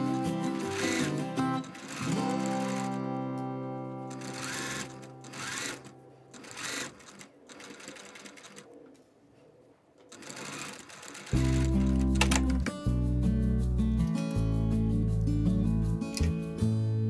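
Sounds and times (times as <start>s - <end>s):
background music: 0.0s - 6.8s, 11.2s - 17.0s
sewing machine stitching: 0.4s - 3.0s, 4.1s - 8.7s, 10.1s - 12.4s.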